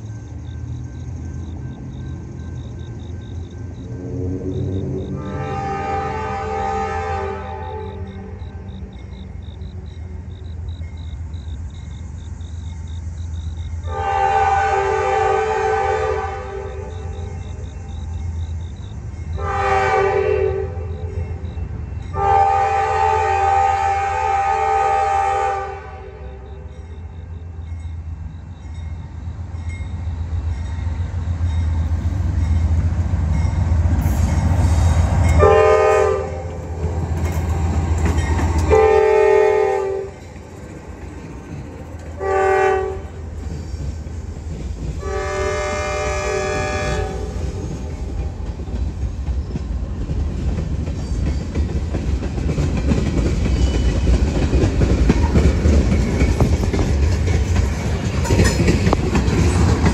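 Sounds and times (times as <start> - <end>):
diesel locomotive engine rumbling: 0.0 - 59.9
train horn chord: 3.9 - 8.7, 13.8 - 17.1, 19.4 - 21.4, 22.1 - 26.6, 35.3 - 36.7, 38.7 - 40.2, 42.2 - 43.2, 45.0 - 47.6
train wheels clacking on rail joints: 27.6 - 59.9.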